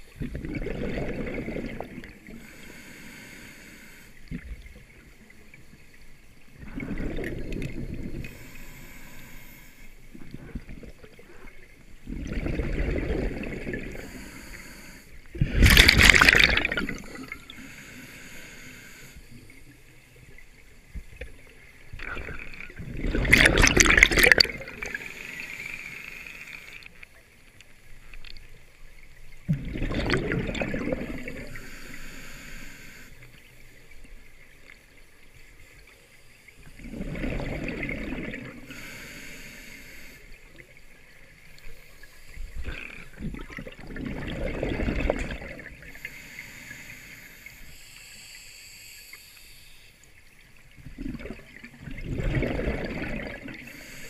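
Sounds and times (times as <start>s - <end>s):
exhaled bubbles rushing out: 0.0s - 2.4s, 6.6s - 8.3s, 12.0s - 14.1s, 15.3s - 17.5s, 22.0s - 25.1s, 29.5s - 31.6s, 36.7s - 38.7s, 42.6s - 45.9s, 50.8s - 53.7s
diver breathing through regulator: 2.2s - 4.3s, 8.2s - 10.7s, 13.8s - 19.4s, 30.9s - 33.4s, 38.6s - 40.4s, 45.8s - 50.0s, 53.6s - 54.0s.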